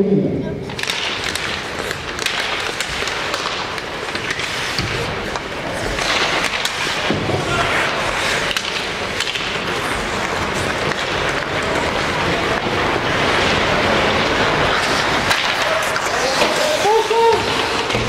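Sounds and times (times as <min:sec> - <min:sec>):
hockey sticks and puck clacking: 0:00.7 - 0:18.0
skates scraping on ice: 0:00.7 - 0:18.0
voices: 0:04.8 - 0:18.0.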